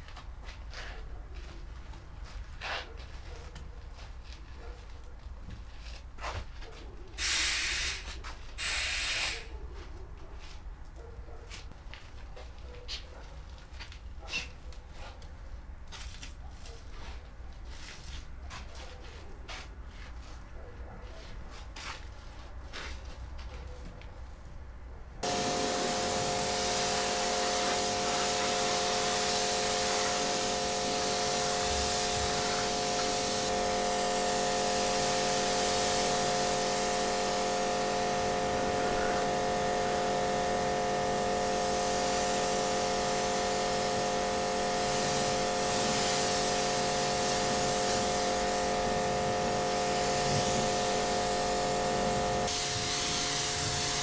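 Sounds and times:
electric machine motor humming: 25.2s - 54.0s.

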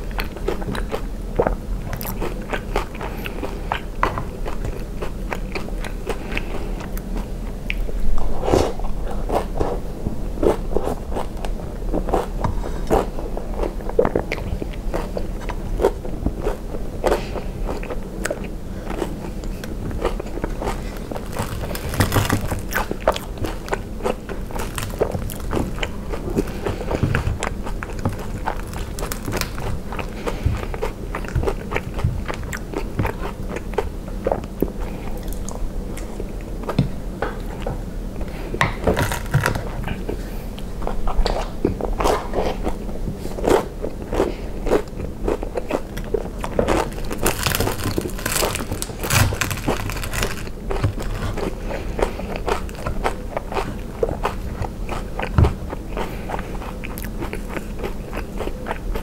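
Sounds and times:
chewing with wet mouth clicks: 0.0s - 7.9s, 10.4s - 37.7s, 50.4s - 59.0s.

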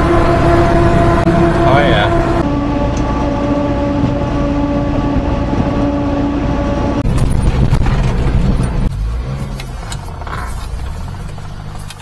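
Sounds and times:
truck engine drone with whine: 0.0s - 12.0s
rattles and clicks: 7.0s - 12.0s.

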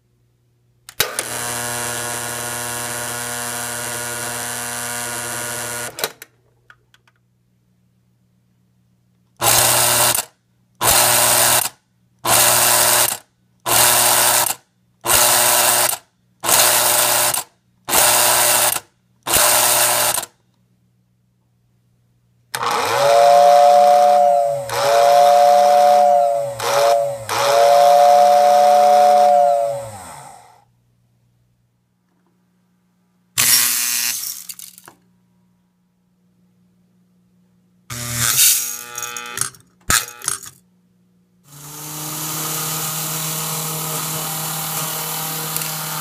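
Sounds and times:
toy train two-tone whistle: 22.7s - 30.0s
solenoid buzzing: 37.9s - 40.5s.

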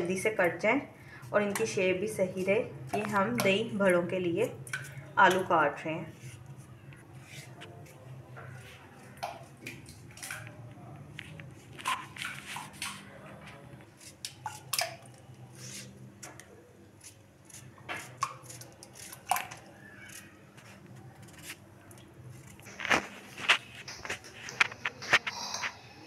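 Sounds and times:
knife cutting potato: 17.0s - 21.6s.

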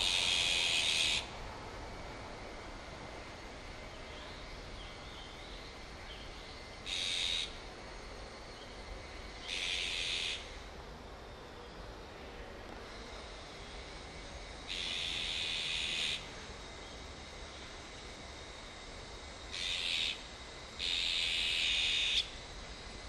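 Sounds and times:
magpies giving harsh rasping calls: 0.0s - 1.3s, 6.8s - 7.6s, 9.4s - 10.6s, 14.7s - 16.2s, 19.5s - 20.2s, 20.8s - 22.3s.

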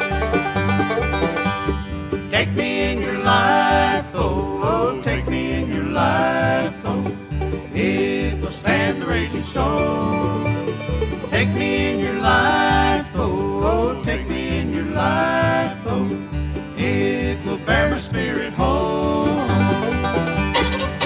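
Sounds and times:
banjo picking: 0.0s - 21.0s
bluegrass band playing: 0.0s - 21.0s
string bass pulse: 0.0s - 21.0s.

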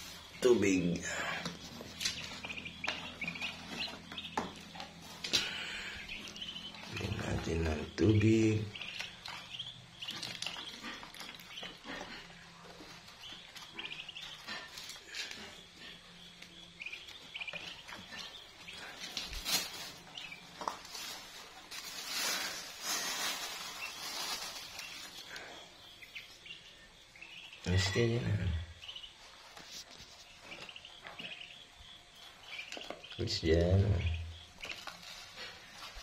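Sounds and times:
rustling: 0.0s - 26.6s, 34.4s - 36.0s
ducklings peeping: 0.0s - 36.0s.

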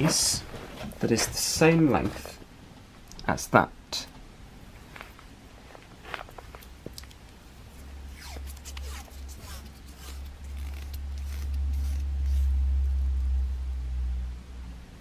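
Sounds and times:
plastic tape ripping off roll: 8.2s - 12.6s.

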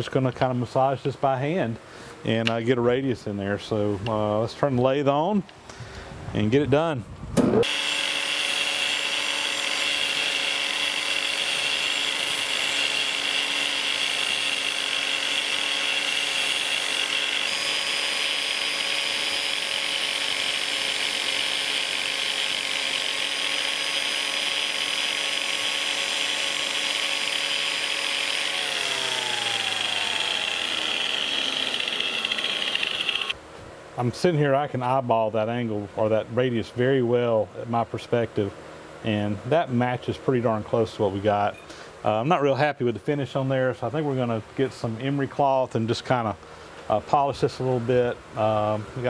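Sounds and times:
angle grinder whining on steel: 7.6s - 33.4s.

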